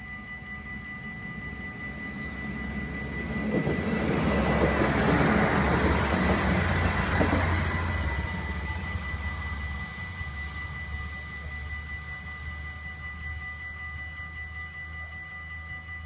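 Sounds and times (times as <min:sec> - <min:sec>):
level crossing warning bells: 0:00.0 - 0:16.0
train engine and wheels passing: 0:00.0 - 0:16.0.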